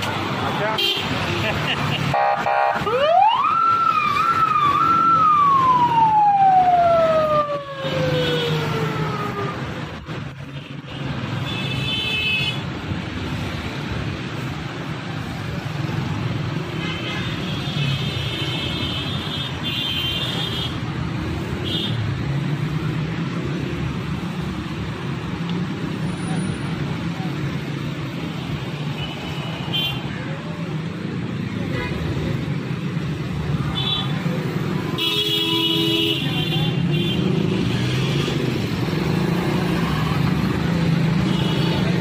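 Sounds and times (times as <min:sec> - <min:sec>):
road noise: 0:00.0 - 0:42.0
police siren wailing: 0:02.3 - 0:09.9.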